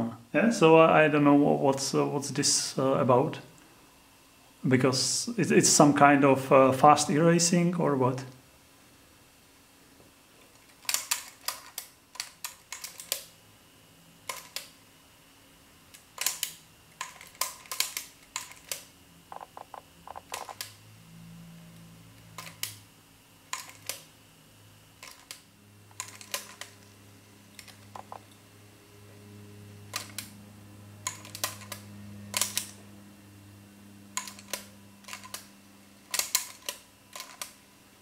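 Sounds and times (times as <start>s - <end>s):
cassette mechanism clicking: 36.1s - 37.6s.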